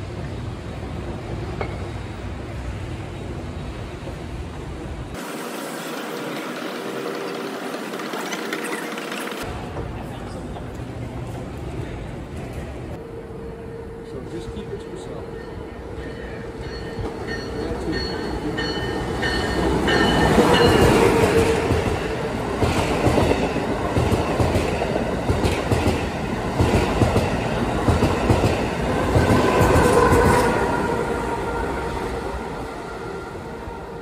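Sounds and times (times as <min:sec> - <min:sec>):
train wheels clicking over rail joints: 0:16.0 - 0:30.5.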